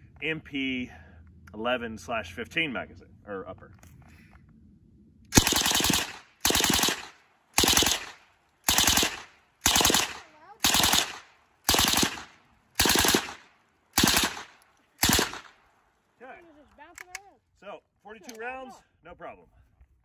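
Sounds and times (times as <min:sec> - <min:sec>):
suppressed submachine gun bursts: 0:14.0 - 0:15.6.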